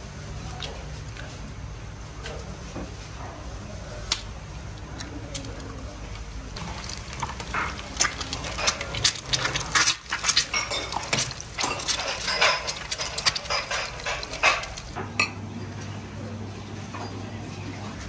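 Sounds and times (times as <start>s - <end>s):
dishes and cutlery clinking: 7.2s - 15.4s.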